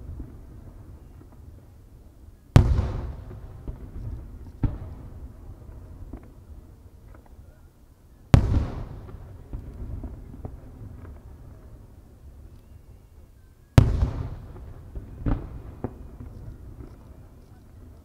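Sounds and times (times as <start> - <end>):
firework shells booming: 2.6 - 6.3, 8.4 - 11.3, 13.8 - 17.1.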